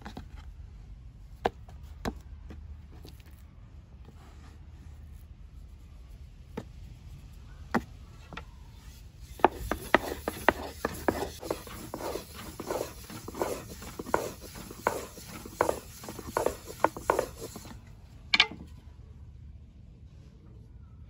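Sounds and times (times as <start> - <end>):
rolling pin on wooden board: 9.2 - 18.7
wooden knocks: 18.3 - 18.7.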